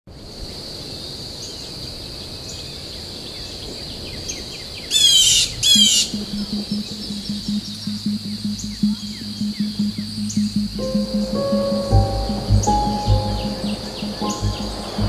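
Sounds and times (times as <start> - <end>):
faint bird chirps: 5.0 - 15.0
low pulsing music tone: 5.6 - 15.0
steady high whine: 5.7 - 15.0.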